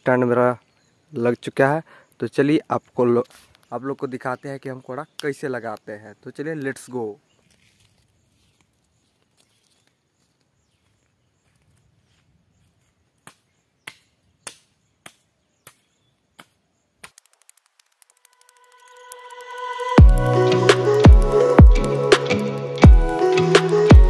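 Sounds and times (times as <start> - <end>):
faint ticks: 17.1 - 20.0.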